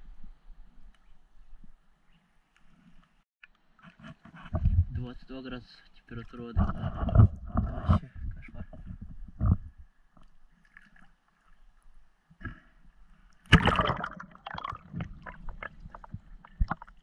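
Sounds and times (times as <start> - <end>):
water sloshing: 13.4 - 17.0
loud splash: 13.5 - 15.6
underwater gurgling: 13.5 - 17.0.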